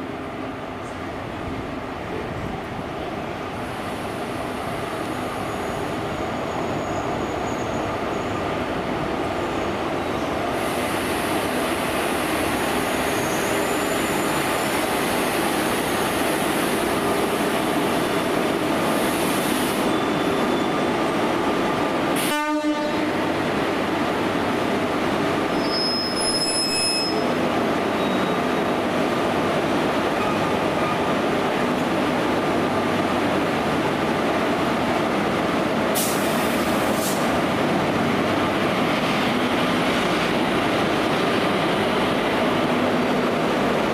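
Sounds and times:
train running on rails: 0:00.0 - 0:43.9
high-pitched wheel squeals: 0:25.6 - 0:27.4.

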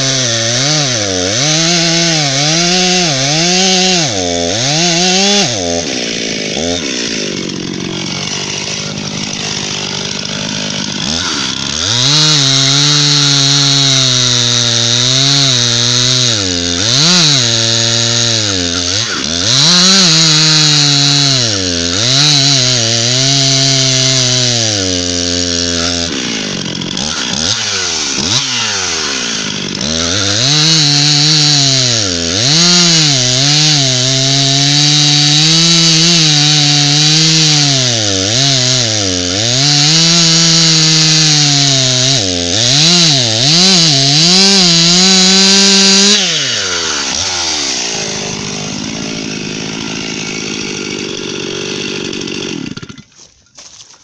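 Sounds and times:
chainsaw cutting wood: 0:00.0 - 0:54.0.

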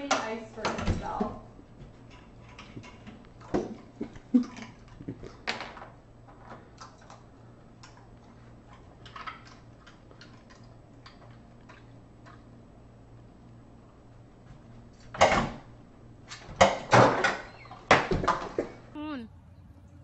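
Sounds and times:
low steady hum: 0:00.0 - 0:20.0
dog claws clicking on floor: 0:07.8 - 0:12.5.

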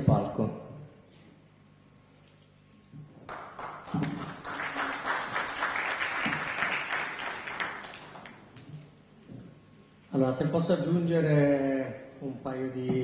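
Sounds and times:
audience applauding: 0:03.3 - 0:08.7.

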